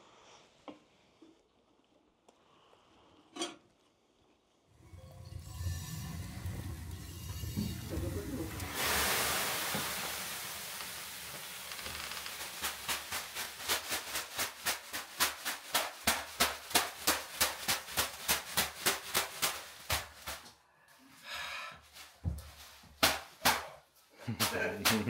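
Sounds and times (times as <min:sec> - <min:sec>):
leafy broom slapping on body: 0:11.4 - 0:20.5, 0:21.9 - 0:25.0.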